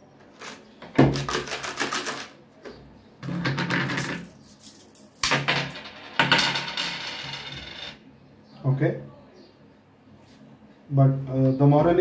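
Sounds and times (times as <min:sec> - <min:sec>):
coins clinking and rattling: 0:00.3 - 0:02.4, 0:03.5 - 0:08.0.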